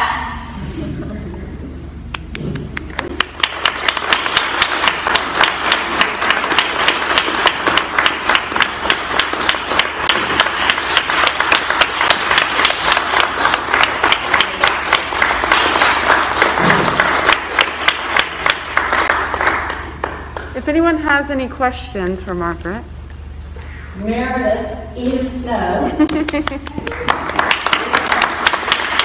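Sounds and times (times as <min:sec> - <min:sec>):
audience applauding: 0:02.8 - 0:20.5, 0:26.0 - 0:29.0.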